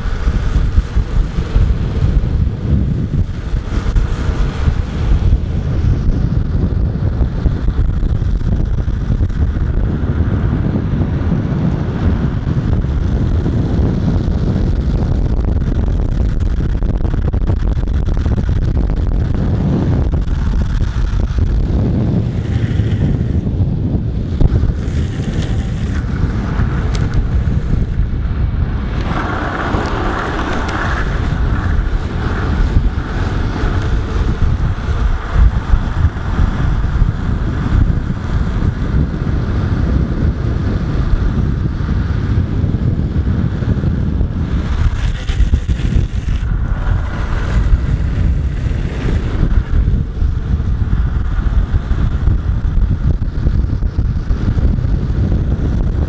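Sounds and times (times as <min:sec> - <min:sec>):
skateboard wheels rolling on asphalt: 0:00.0 - 0:56.0
wind buffeting microphone: 0:00.0 - 0:56.0.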